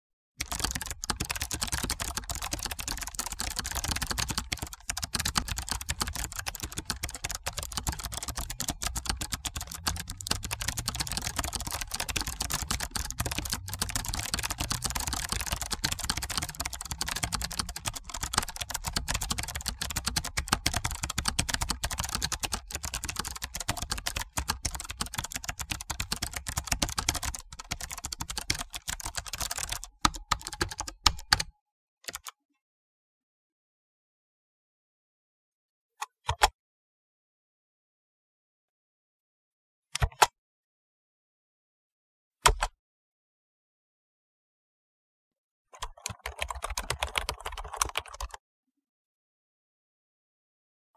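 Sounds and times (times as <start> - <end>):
computer keyboard typing: 0.4 - 31.5, 45.8 - 48.4.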